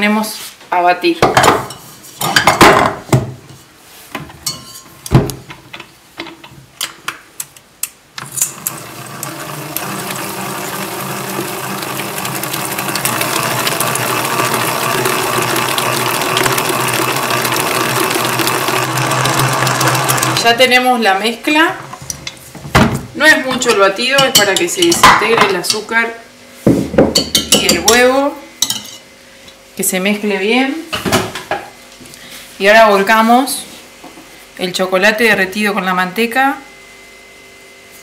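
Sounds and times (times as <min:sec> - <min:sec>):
metal bowl clinking: 0:04.4 - 0:04.9, 0:23.5 - 0:25.9
stand mixer motor running: 0:08.3 - 0:20.6
wire whisk beating in steel bowl: 0:23.4 - 0:25.8.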